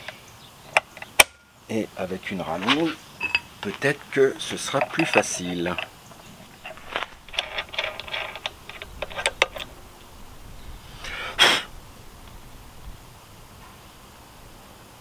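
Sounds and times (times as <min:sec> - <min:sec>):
metal clicks and clinks: 0:03.2 - 0:03.8, 0:04.4 - 0:09.7.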